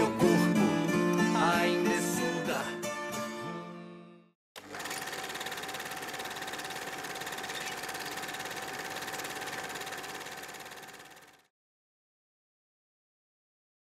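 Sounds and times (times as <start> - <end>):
film projector rattle: 4.6 - 11.5.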